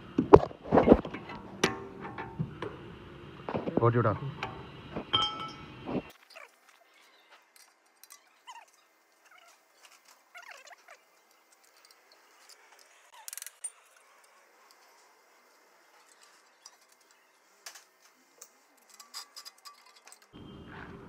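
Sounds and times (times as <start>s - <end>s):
metal clatter: 0.6s - 2.9s, 15.9s - 20.4s
hand tools knocking on metal: 4.3s - 5.8s.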